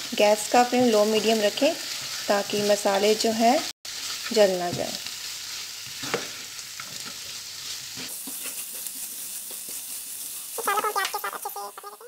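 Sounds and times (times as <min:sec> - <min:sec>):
onions sizzling in oil: 0:00.0 - 0:12.0
spatula stirring and scraping: 0:01.8 - 0:02.8, 0:05.2 - 0:10.6.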